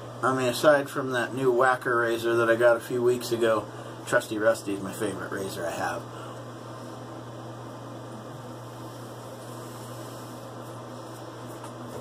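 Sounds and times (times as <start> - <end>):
electrical hum with hiss: 0.0 - 12.0.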